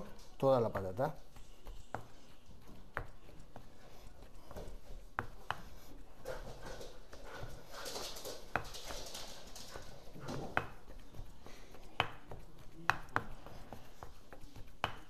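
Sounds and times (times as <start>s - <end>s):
pestle mashing potato: 0.0s - 7.4s, 9.8s - 15.0s.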